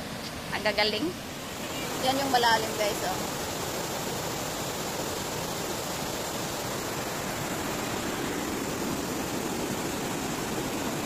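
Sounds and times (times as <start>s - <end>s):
stream rushing over rocks: 0.0s - 11.0s.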